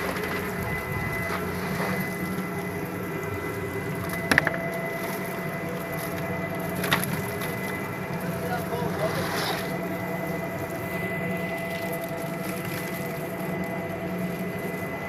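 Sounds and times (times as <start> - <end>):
screw press machine drone: 0.0 - 8.6.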